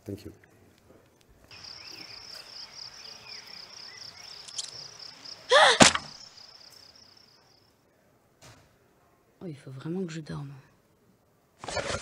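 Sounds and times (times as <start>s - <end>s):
crickets chirping: 1.5s - 7.8s.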